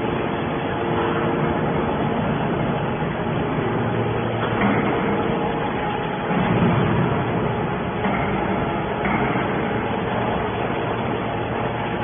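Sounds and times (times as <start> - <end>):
hydraulic baler humming and hissing: 0.0 - 12.0.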